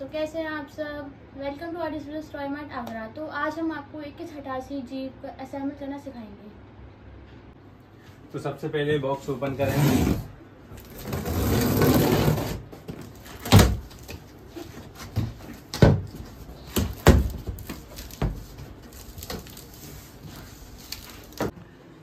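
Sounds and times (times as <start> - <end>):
cardboard knocks and thuds: 11.9 - 14.1, 15.0 - 18.5.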